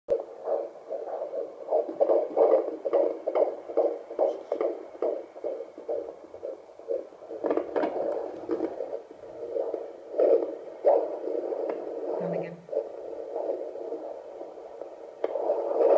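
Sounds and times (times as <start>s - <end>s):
fetal heartbeat on doppler speaker: 0.1s - 15.9s
probe crackles: 0.1s - 15.9s.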